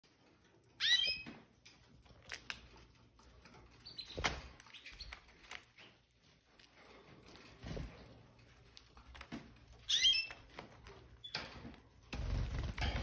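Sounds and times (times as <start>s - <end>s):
canaries chirping: 0.5s - 1.8s, 3.4s - 6.0s, 9.7s - 13.0s.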